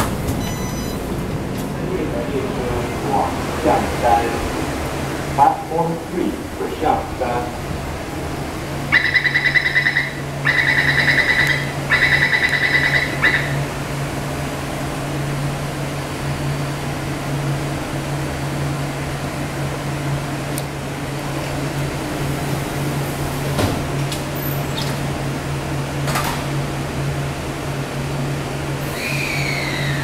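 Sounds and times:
train low hum: 0.0s - 30.0s
door warning beeps: 0.4s - 1.1s, 9.0s - 13.6s.

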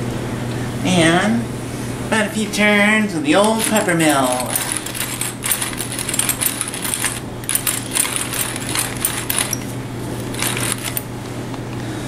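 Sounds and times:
pepper mill grinding: 3.4s - 11.1s.

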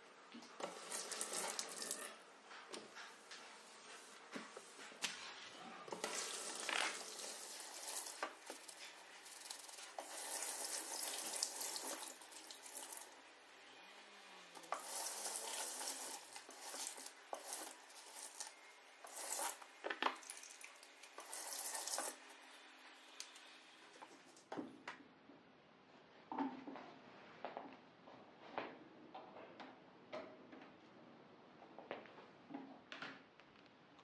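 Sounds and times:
tap water running into sink: 0.6s - 2.1s, 5.9s - 13.2s, 14.6s - 22.2s
hands rubbing sink: 6.0s - 13.0s, 14.7s - 19.6s.

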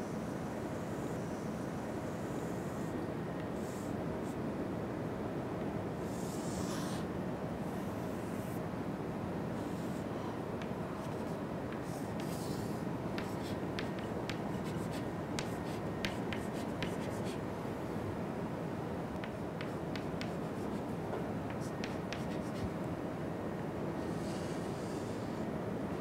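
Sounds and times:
low room hum: 0.0s - 26.0s
chalk tapping and scraping: 10.6s - 17.4s, 19.2s - 22.8s.

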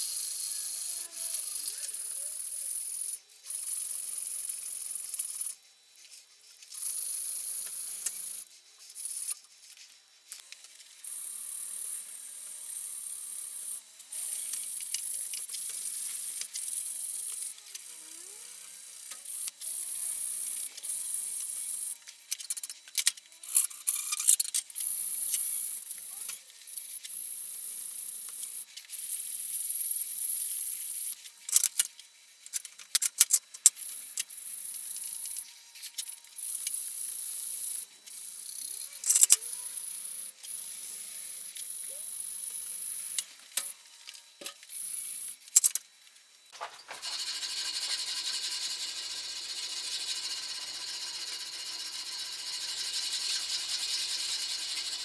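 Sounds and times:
abrasive strip rasping on wood: 47.0s - 55.0s.

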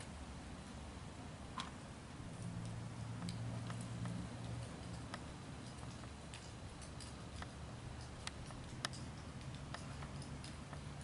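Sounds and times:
sharp clicks: 2.6s - 10.9s.

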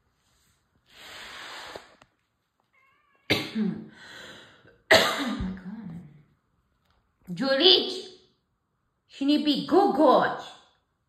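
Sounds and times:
cat hissing: 0.9s - 2.0s.

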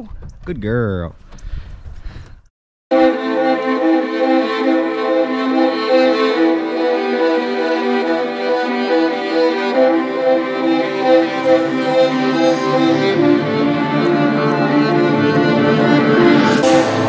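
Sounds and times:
bowed strings music: 2.9s - 17.0s
violin sustained notes: 2.9s - 17.0s.

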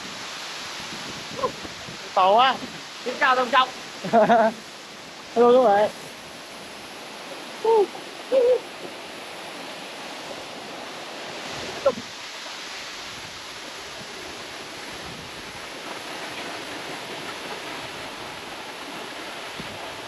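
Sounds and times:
waterfall rushing: 0.0s - 20.0s
hoot-like calls: 7.6s - 8.8s.

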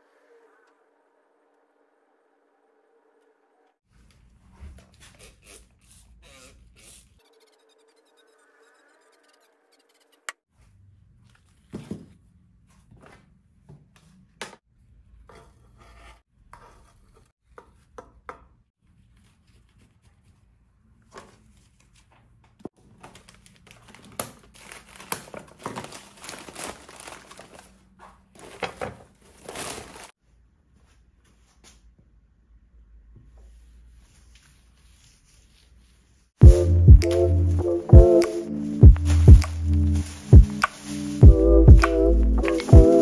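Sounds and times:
crinkling: 21.3s - 30.2s
potting mix rustling and crunching: 24.6s - 27.7s.

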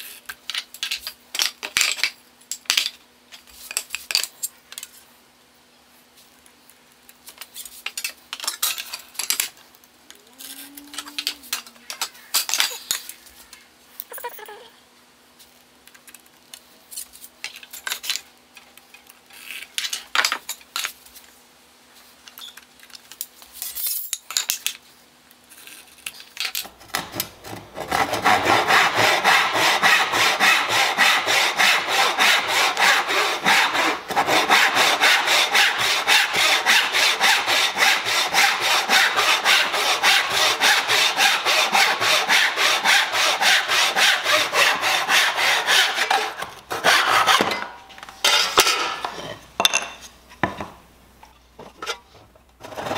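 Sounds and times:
hand saw cutting wood: 27.4s - 47.7s.

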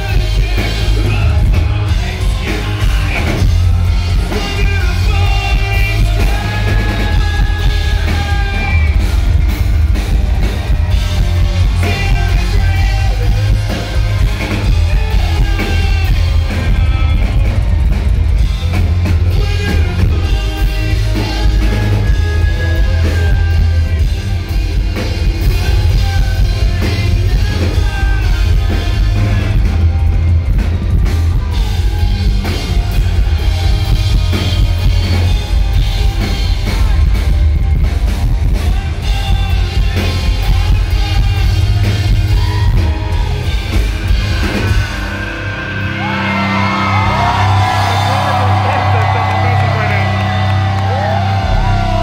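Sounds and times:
man singing lead vocal: 0.0s - 9.1s, 11.4s - 17.8s, 19.1s - 30.2s, 38.4s - 43.2s
rock band playing live: 0.0s - 52.0s.

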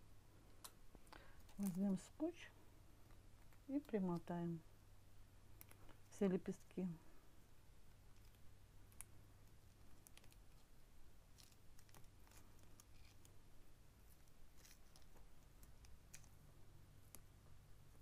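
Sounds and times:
tape rustling: 7.9s - 16.4s.

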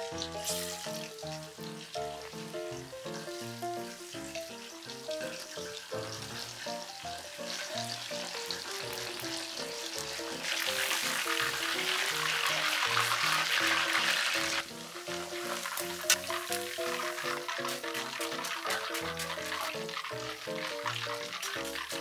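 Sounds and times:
background music: 0.0s - 22.0s
meat deep-frying in oil: 0.0s - 22.0s.

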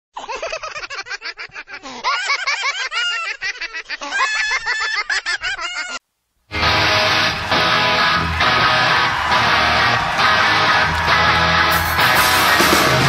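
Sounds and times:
high-pitched giggling laughter: 0.2s - 6.0s.

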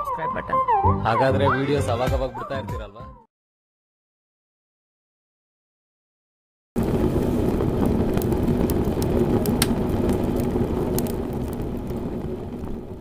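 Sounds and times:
fire crackles: 6.8s - 13.0s
fire roaring: 6.8s - 13.0s.

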